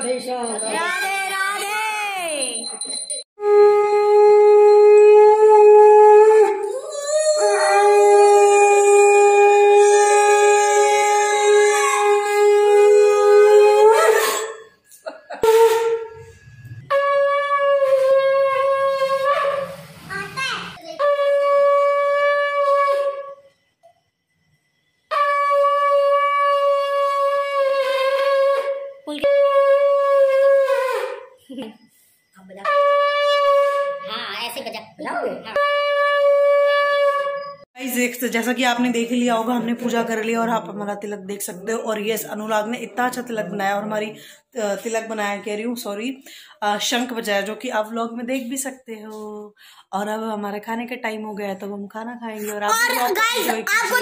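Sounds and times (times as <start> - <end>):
conch shell blown: 3.4 - 14.8, 15.4 - 19.9, 21.0 - 23.6, 25.1 - 31.4, 32.5 - 34.2, 35.5 - 37.7.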